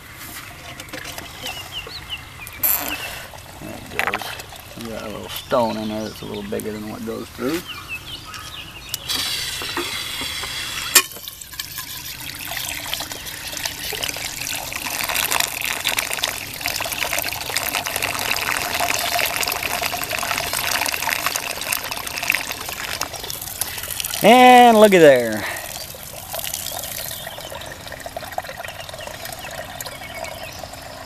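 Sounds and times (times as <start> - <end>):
water pouring and splashing: 9.0 - 31.0.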